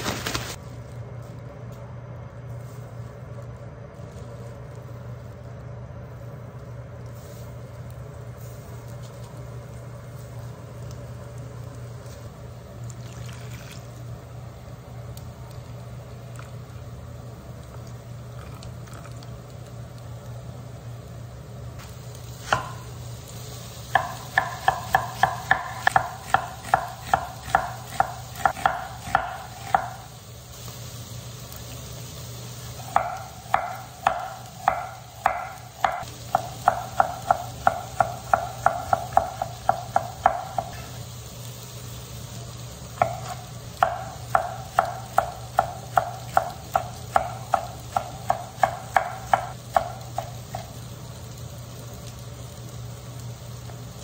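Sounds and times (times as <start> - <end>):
knife chopping on wooden board: 22.4 - 22.8, 23.9 - 30.0, 32.9 - 40.9, 43.0 - 50.6.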